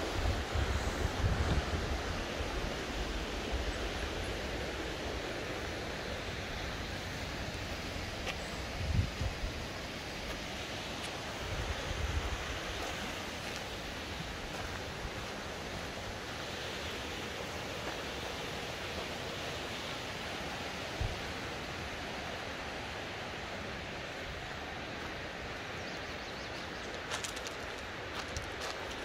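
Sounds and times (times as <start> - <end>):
waterfall rushing: 0.0 - 25.9.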